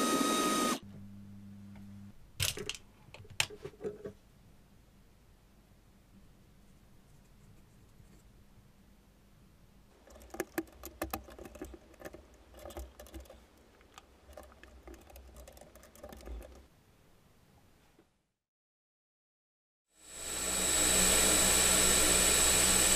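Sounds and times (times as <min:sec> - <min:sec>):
faint hum: 0:00.7 - 0:02.4.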